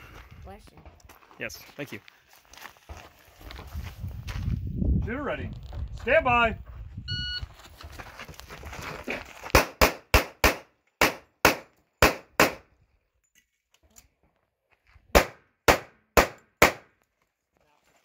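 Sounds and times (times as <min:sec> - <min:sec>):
pistol shots: 0:09.6 - 0:12.6, 0:15.2 - 0:16.9.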